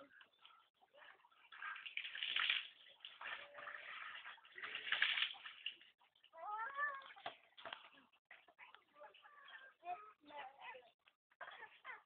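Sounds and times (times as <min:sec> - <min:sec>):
water splashing: 0:00.4 - 0:08.4.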